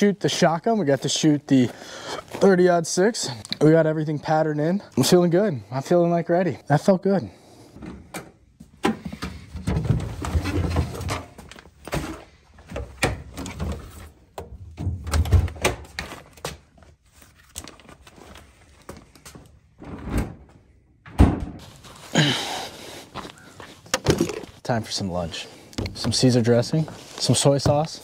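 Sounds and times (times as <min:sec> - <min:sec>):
knocks and thuds: 0:21.0 - 0:21.6.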